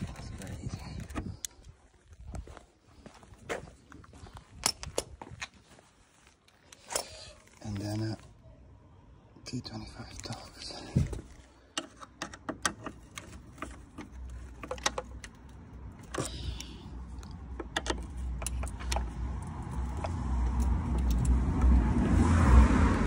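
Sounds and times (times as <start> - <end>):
screwdriver clicks and metallic ticks: 11.8 - 21.8.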